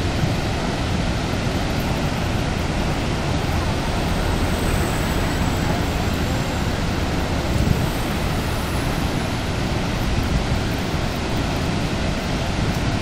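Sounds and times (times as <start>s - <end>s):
waterfall roaring: 0.0s - 13.0s.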